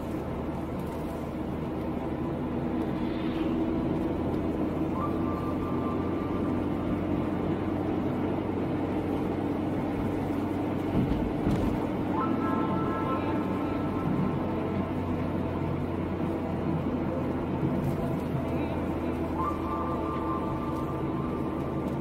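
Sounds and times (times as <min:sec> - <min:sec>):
car road and engine noise: 0:00.0 - 0:22.0.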